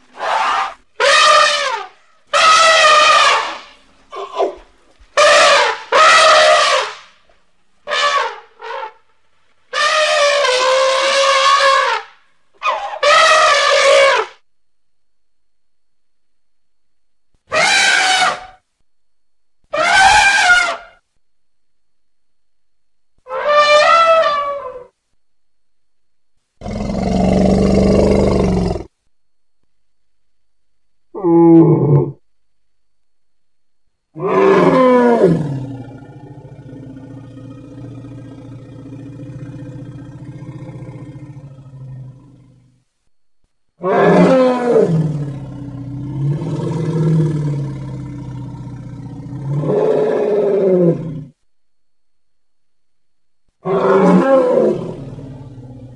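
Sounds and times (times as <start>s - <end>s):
elephant trumpeting: 0.2s - 4.6s, 5.2s - 7.0s, 7.9s - 9.0s, 9.7s - 14.4s, 17.5s - 18.6s, 19.7s - 20.9s, 23.3s - 24.9s, 34.2s - 42.5s, 43.8s - 51.2s, 53.6s - 55.9s
elephant low roar: 26.6s - 28.9s, 34.2s - 42.8s, 43.8s - 51.4s, 53.6s - 55.9s
elephant low call: 34.2s - 42.8s.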